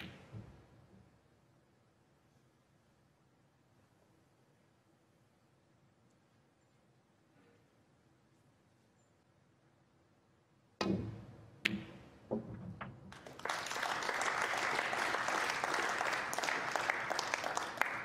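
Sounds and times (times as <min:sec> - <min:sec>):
audience applauding: 0:13.1 - 0:18.0.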